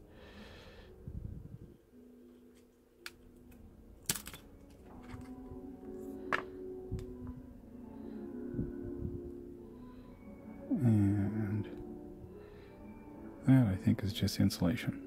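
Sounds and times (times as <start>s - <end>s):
metal tweezers handling noise: 2.4s - 7.3s.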